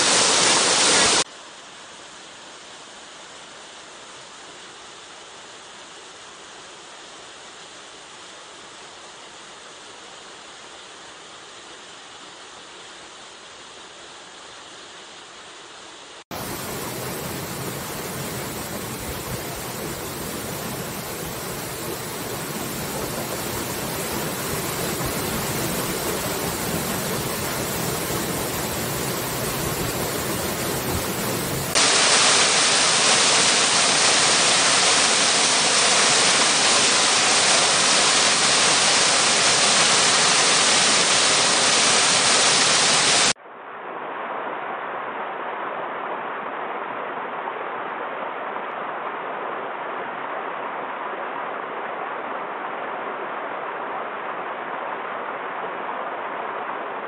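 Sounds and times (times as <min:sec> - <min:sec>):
waterfall rushing: 0:00.0 - 0:01.3, 0:16.3 - 0:43.4.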